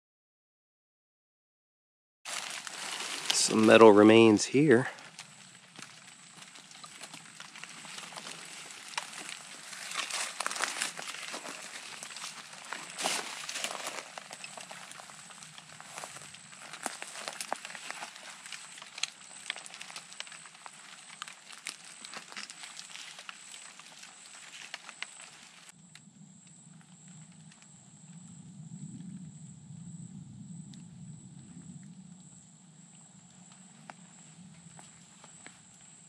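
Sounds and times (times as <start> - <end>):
footsteps crunching through dry leaves: 2.3 - 25.7
low rumble: 25.8 - 34.8.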